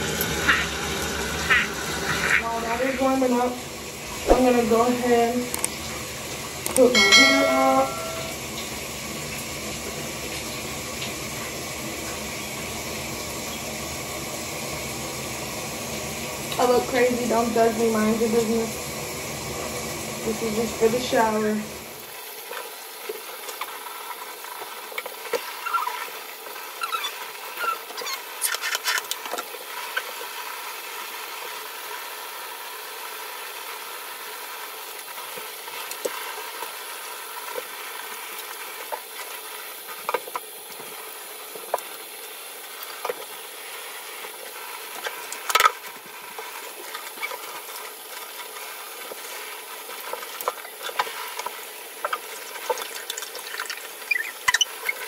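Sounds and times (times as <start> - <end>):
shower spray running: 0.0 - 55.0
small splashes and clicks: 27.8 - 30.1, 44.9 - 55.0.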